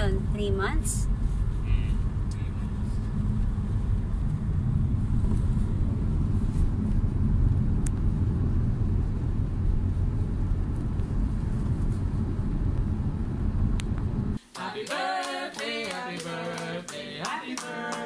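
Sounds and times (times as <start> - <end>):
car engine and tyre rumble: 0.0 - 14.4.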